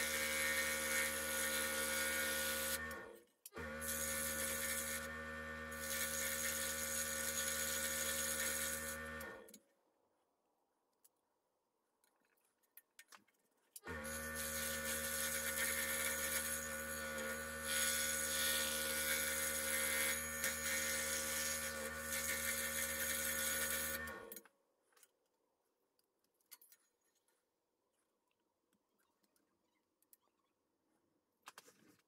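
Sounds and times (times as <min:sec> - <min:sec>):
electric scroll saw running: 0:00.0 - 0:09.5, 0:13.9 - 0:24.4.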